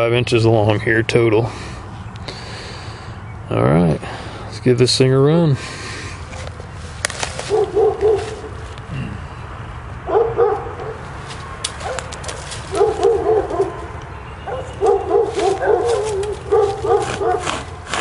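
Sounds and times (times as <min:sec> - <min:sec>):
distant dogs barking: 0:07.3 - 0:09.3, 0:10.0 - 0:17.8.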